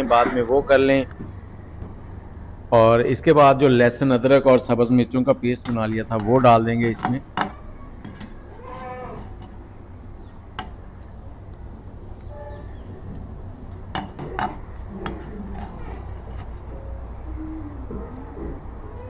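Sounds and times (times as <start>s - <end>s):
metal spatula scraping in stone mortar: 5.3s - 9.6s, 14.0s - 16.8s.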